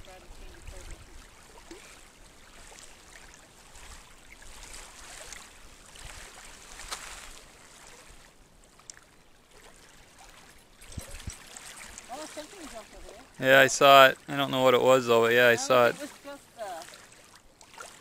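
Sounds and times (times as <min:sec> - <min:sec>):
wind rumble on microphone: 0:00.0 - 0:01.7, 0:03.8 - 0:07.3, 0:10.8 - 0:11.5
waves lapping in shallows: 0:00.0 - 0:18.0.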